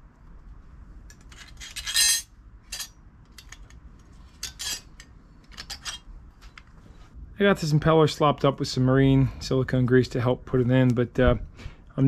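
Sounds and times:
small hard parts clinking: 0:01.1 - 0:06.0.

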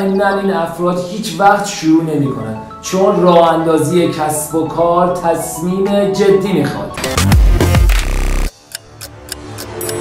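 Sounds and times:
buzzy tone: 0:07.0 - 0:08.5.

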